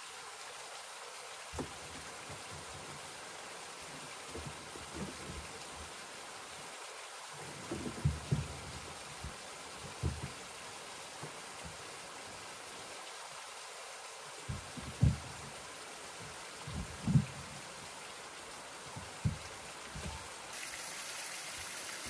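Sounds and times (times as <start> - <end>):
stream water hissing: 0.0 - 22.0
wooden plank thumping down: 1.6 - 3.2, 3.9 - 6.0, 7.5 - 12.4, 14.5 - 15.6, 16.2 - 17.8, 18.9 - 20.5.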